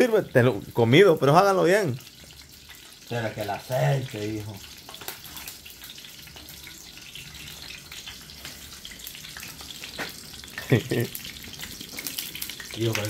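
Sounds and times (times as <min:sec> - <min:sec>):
sausages sizzling in oil: 0:00.0 - 0:13.0.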